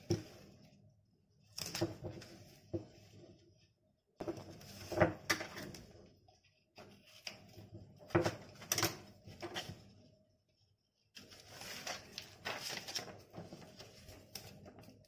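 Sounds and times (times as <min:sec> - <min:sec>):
paper rustling and crinkling: 0:11.2 - 0:15.0.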